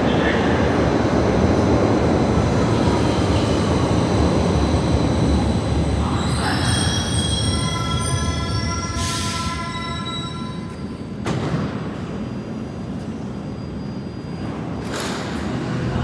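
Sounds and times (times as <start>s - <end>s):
train rumbling through station: 0.0s - 16.0s
high wheel squeal: 6.0s - 11.2s.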